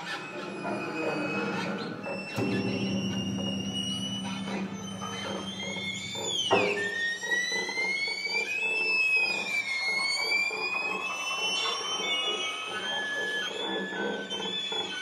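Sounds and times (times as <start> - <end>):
piano: 0.0 - 8.1
sliding string tones: 0.6 - 7.7
sharp knock: 2.4 - 7.1.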